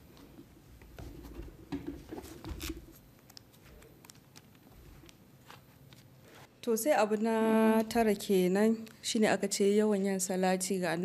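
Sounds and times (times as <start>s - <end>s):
book pages rustling: 0.9s - 6.5s.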